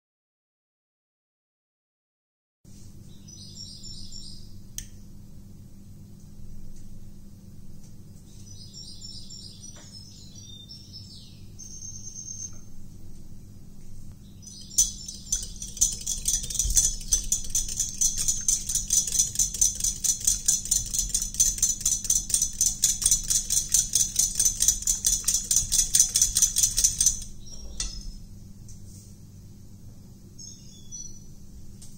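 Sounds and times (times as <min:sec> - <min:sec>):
whisk clinking against glass bowl: 0:14.5 - 0:28.2.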